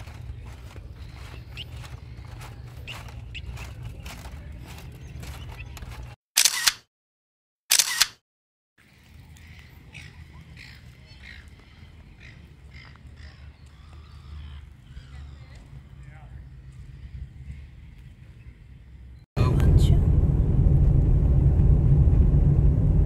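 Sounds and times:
footsteps on footbridge: 0.0 - 6.2
camera shutter clicks: 6.4 - 6.9, 7.7 - 8.2
wind rumble on microphone: 14.9 - 23.0.

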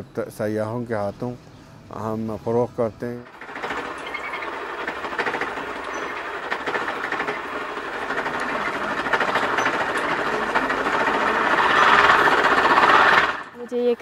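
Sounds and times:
spinning wheel clatter: 3.3 - 13.8.

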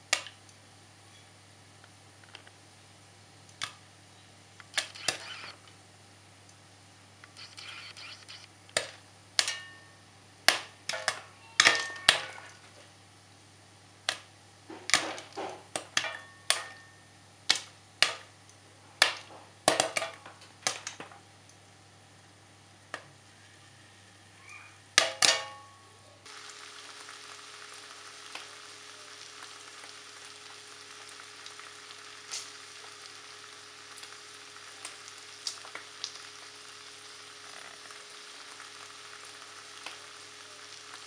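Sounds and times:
popcorn popping in a pan: 0.0 - 0.7, 8.6 - 13.0, 13.8 - 22.0, 25.0 - 25.7, 26.3 - 41.0.

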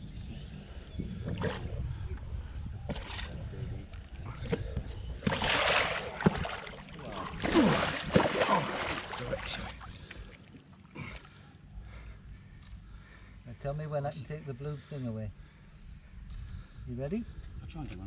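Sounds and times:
fish tail splashing water: 5.2 - 10.7.

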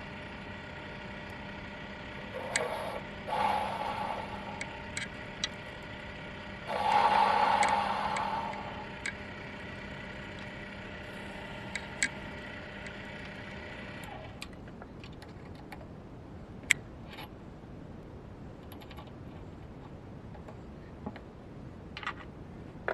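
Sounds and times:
lathe motor humming and winding down: 0.0 - 14.4.

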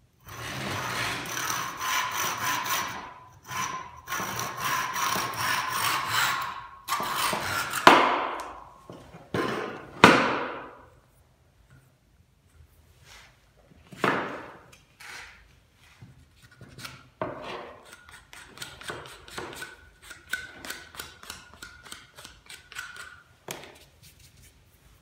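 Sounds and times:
hard knocks: 9.4 - 10.8.

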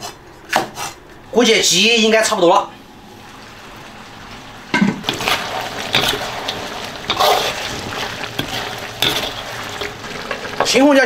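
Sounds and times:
sauce bubbling and sizzling in a wok: 3.0 - 11.0.

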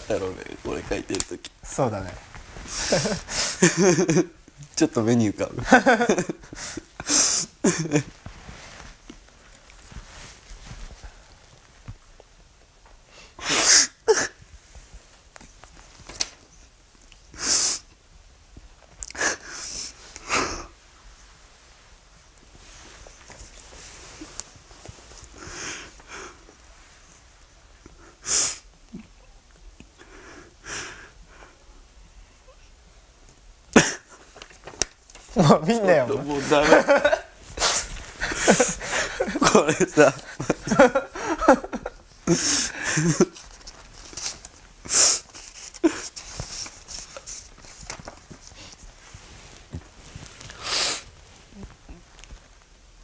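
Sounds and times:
man sniffling and sobbing: 2.6 - 4.5, 6.2 - 8.2, 13.1 - 14.5, 19.0 - 20.8, 36.5 - 43.6, 44.8 - 47.5
man sniffling: 6.5 - 7.8, 28.1 - 28.7, 37.6 - 39.2, 44.8 - 46.6, 50.6 - 51.1
paper rustling: 34.1 - 42.2, 43.0 - 52.7.

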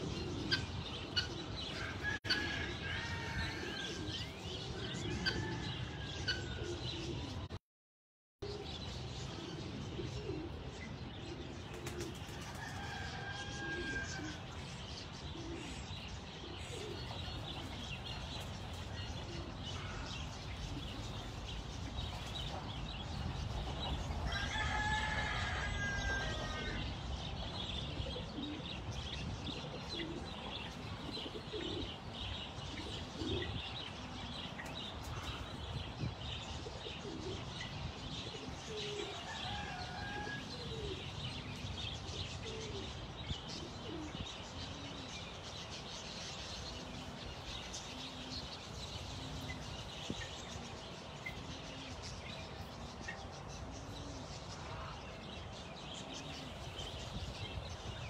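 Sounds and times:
rooster crowing: 1.8 - 4.1, 12.5 - 14.4, 24.3 - 26.8, 39.2 - 40.8.

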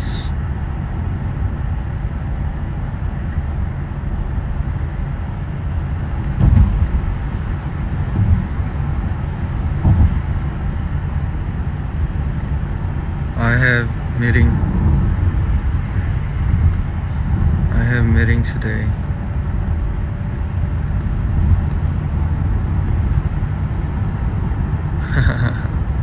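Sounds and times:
car tyre and engine rumble: 0.0 - 26.0
soft thumps: 6.2 - 7.2, 9.8 - 10.3.

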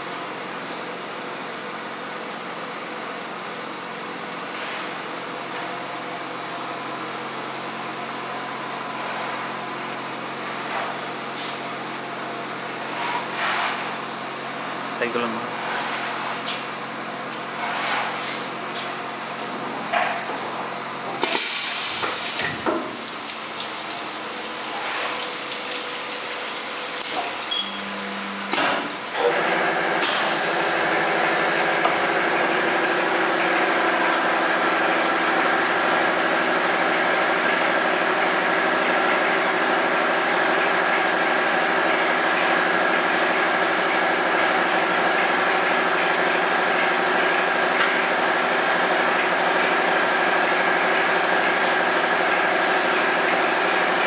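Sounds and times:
machine humming: 22.0 - 35.8.

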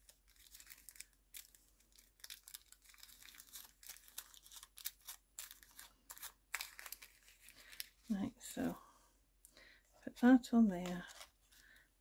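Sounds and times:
paper rustling and crinkling: 0.0 - 8.3, 10.8 - 11.9.

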